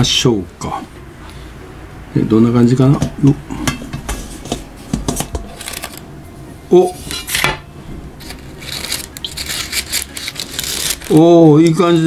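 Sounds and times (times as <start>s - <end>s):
metal clank: 3.0s - 6.1s
baking paper rustling: 8.2s - 12.0s.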